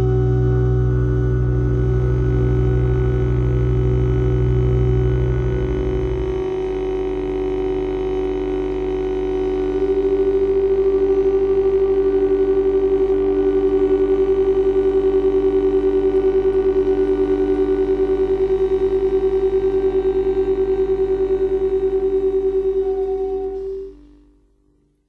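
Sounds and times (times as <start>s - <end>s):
long held microtonal ensemble tones: 0.0s - 24.2s.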